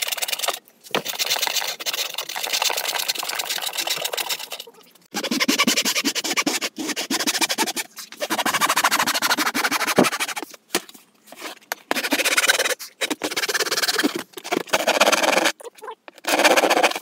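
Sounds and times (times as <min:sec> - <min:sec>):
handsaw cutting plywood: 0:05.1 - 0:10.4, 0:11.9 - 0:15.5, 0:16.2 - 0:17.0.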